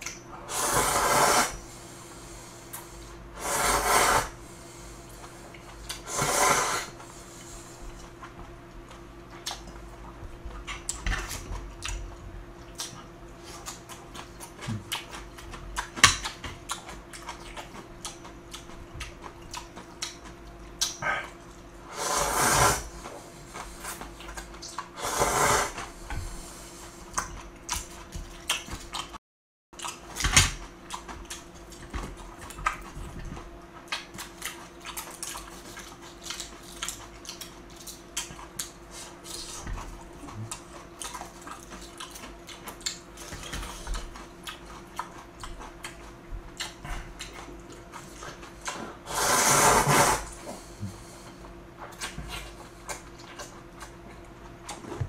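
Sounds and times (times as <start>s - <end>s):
slurping noodles: 0.4s - 1.6s, 3.4s - 4.4s, 5.9s - 7.0s, 21.9s - 24.0s, 25.0s - 25.9s, 48.7s - 51.0s
chewing: 5.1s - 6.0s, 7.4s - 21.7s, 23.0s - 24.9s, 26.8s - 29.2s, 29.8s - 49.0s, 50.3s - 54.9s.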